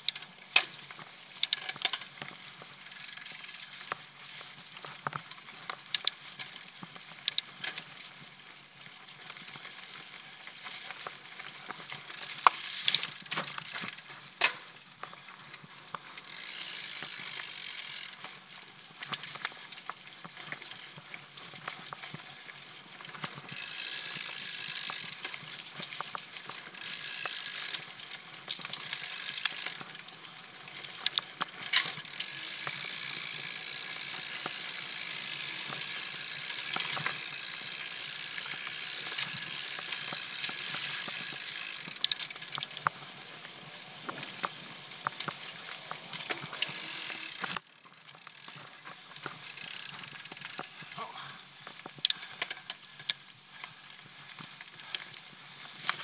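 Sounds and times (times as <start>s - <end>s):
bike freehub buzzing: 1.4s - 4.2s, 16.2s - 18.4s, 23.5s - 25.4s, 26.0s - 27.9s, 28.5s - 30.0s, 31.0s - 42.7s, 46.2s - 50.9s.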